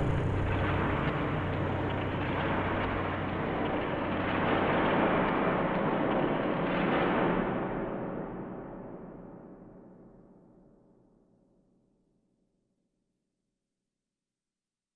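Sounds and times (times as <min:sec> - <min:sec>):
low hum: 0:00.0 - 0:06.2
dense rumbling noise: 0:00.0 - 0:06.6.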